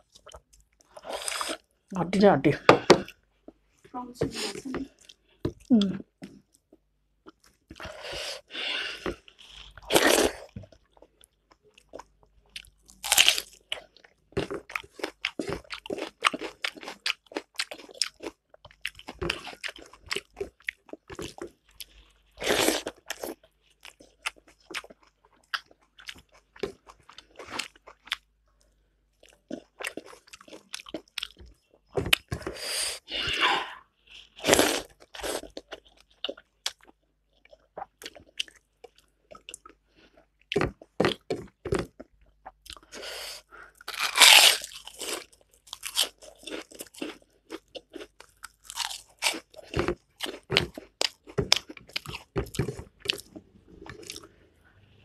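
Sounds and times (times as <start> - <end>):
crunchy bites: 43.8 - 54.2.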